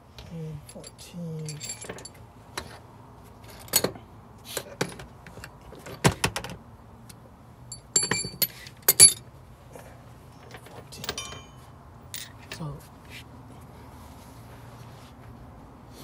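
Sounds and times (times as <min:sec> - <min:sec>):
metal hand tools clinking: 0:00.6 - 0:02.2, 0:07.7 - 0:09.2, 0:11.0 - 0:12.6.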